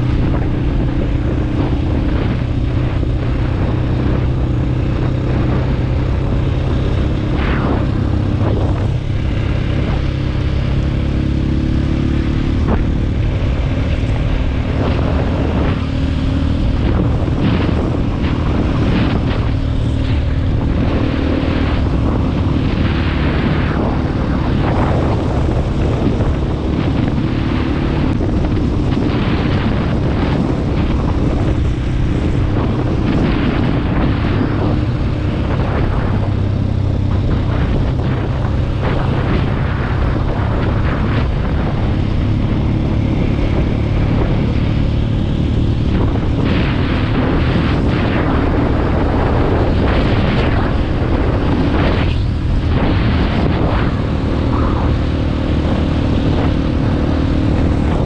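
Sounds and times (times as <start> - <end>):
motorcycle engine running: 0.0 - 58.0
wind on microphone: 0.0 - 58.0.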